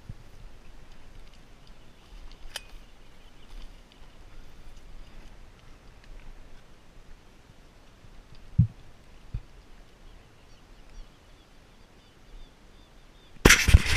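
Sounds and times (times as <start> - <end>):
faint high bird chirps: 10.0 - 13.4.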